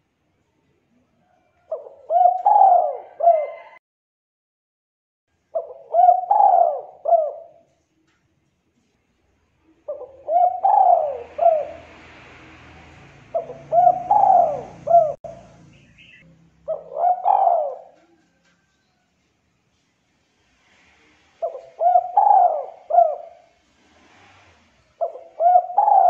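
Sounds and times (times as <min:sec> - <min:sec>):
dove cooing: 0:01.2 - 0:03.8, 0:05.5 - 0:07.8, 0:09.9 - 0:18.6, 0:21.0 - 0:26.0.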